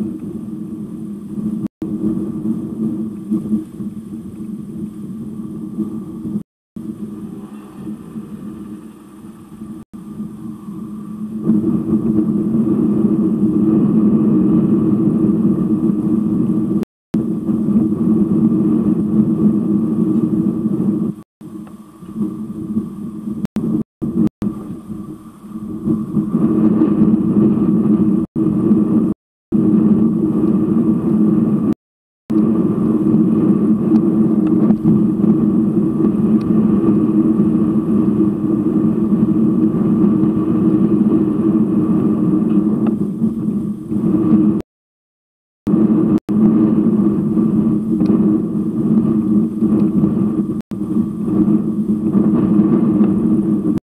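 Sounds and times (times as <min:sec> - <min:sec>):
low droning hum: 0:00.0 - 0:44.6.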